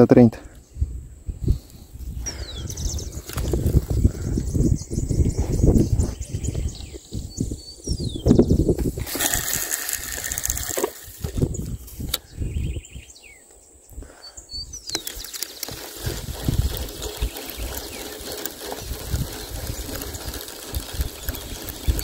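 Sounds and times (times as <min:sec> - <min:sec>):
wind buffeting microphone: 0:00.6 - 0:13.3, 0:13.9 - 0:22.0
bird chirps: 0:02.1 - 0:08.8, 0:11.4 - 0:22.0.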